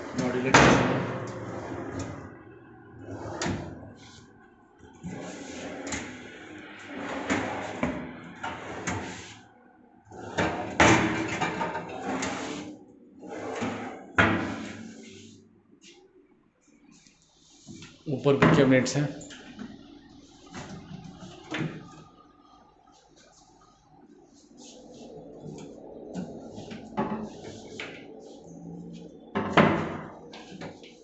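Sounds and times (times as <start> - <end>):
drawers sliding: 10.1 - 15.4.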